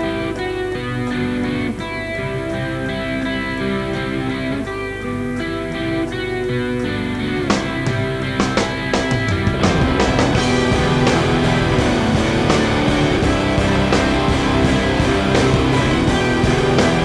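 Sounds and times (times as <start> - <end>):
electric guitar picking slow notes: 0.0 - 17.0.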